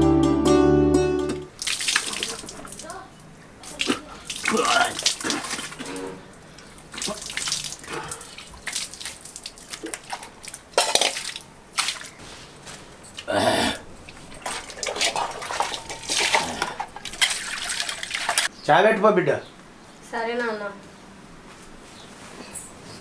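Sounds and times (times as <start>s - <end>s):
water splashing and pouring: 1.5s - 12.2s, 13.9s - 18.5s.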